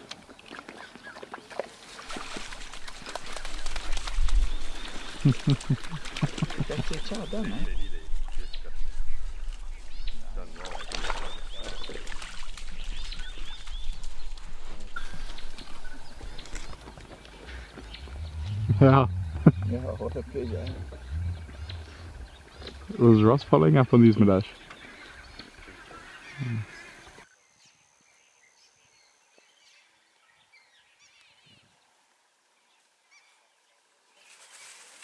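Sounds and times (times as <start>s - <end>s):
bush ambience: 0.0s - 27.3s
high chirping animal calls: 15.0s - 27.2s.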